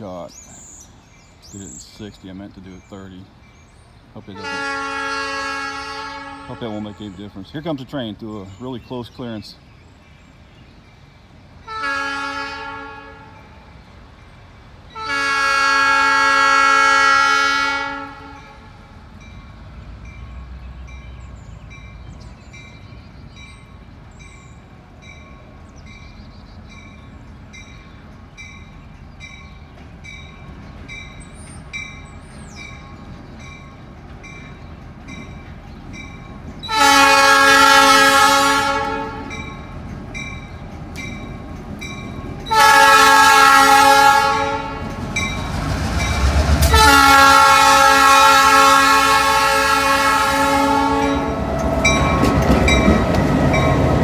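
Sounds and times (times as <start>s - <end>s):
locomotive air horn blasts: 4.4s - 7.0s, 11.7s - 13.4s, 15.0s - 18.7s, 36.7s - 39.4s, 42.5s - 45.0s, 46.6s - 51.5s.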